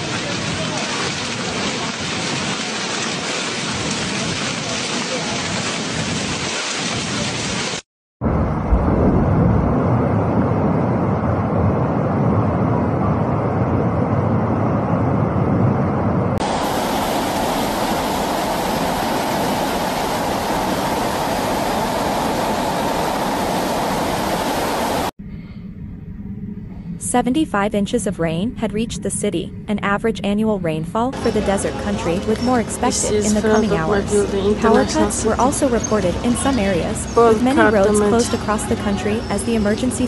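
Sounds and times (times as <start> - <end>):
floodwater rushing: 0.0 - 7.8, 16.4 - 25.1, 31.2 - 38.7.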